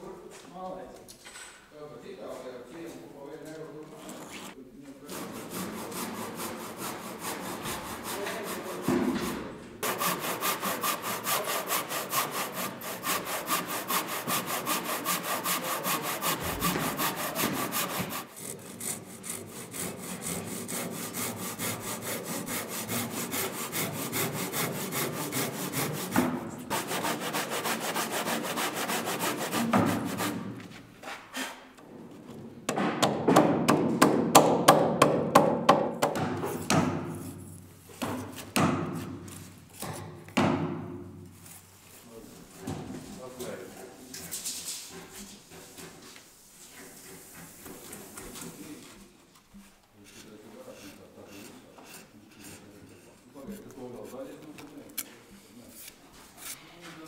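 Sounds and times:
handsaw cutting timber: 5.0s - 30.6s, 50.1s - 54.0s.

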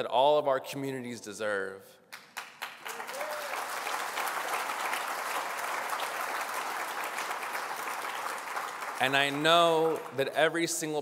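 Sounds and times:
audience applauding: 2.1s - 10.5s.

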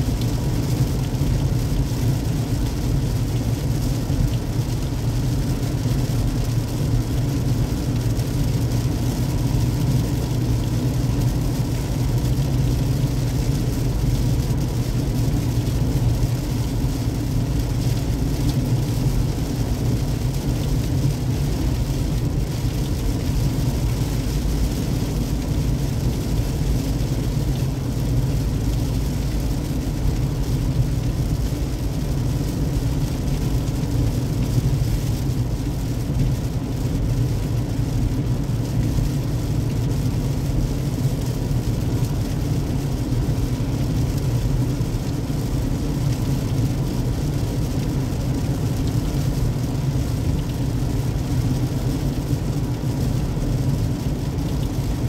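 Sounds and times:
hiss of water and rain: 0.0s - 55.0s.

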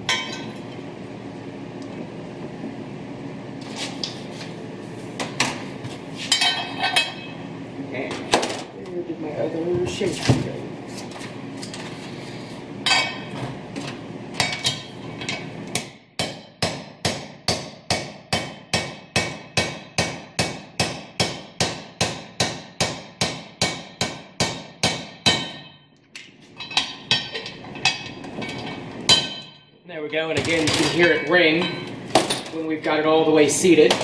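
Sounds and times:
hammer striking metal with ring: 16.2s - 25.9s, 29.1s - 29.7s.

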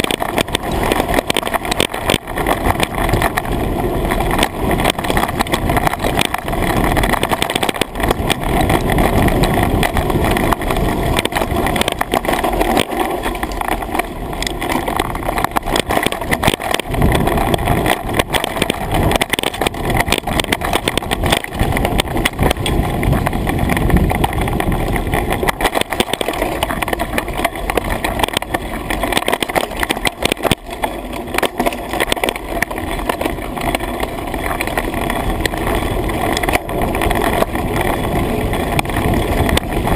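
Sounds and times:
bike rattling and knocking: 0.0s - 39.9s
tyres rolling on dirt: 0.0s - 39.9s
wind rushing over microphone: 0.0s - 39.9s.

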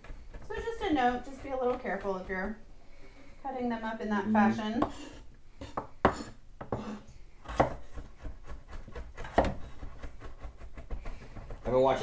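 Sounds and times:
knife chopping on wooden board: 4.8s - 12.0s.

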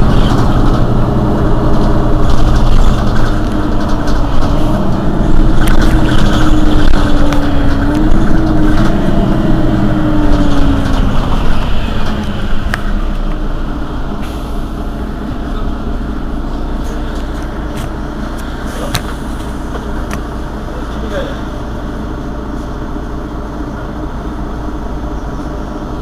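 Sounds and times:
bus diesel engine idling: 0.0s - 26.0s
whine over engine: 0.0s - 26.0s.

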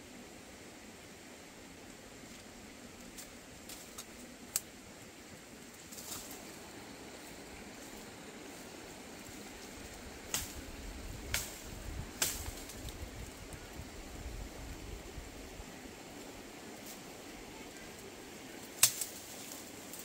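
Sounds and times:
outdoor background hiss: 0.0s - 20.0s
machete chopping tree trunk: 18.8s - 19.1s.

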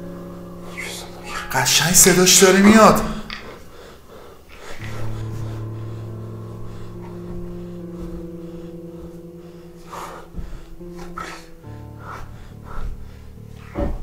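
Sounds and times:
low drone of held tones: 0.0s - 2.4s, 4.7s - 14.0s.

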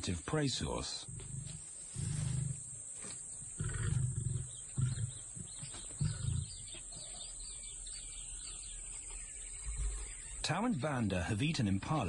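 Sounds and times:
lions growling: 1.0s - 2.8s, 3.5s - 6.8s.

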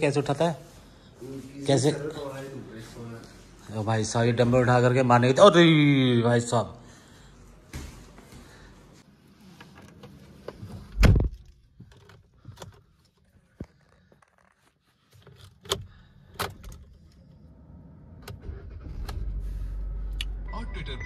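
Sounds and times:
car engine starting and running: 15.2s - 21.0s.

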